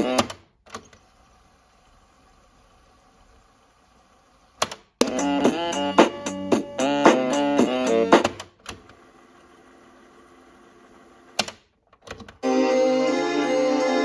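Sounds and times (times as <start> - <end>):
plucked music from small speaker: 5.0 - 8.2, 12.4 - 14.0
music with held chords: 5.0 - 8.4, 12.4 - 14.0.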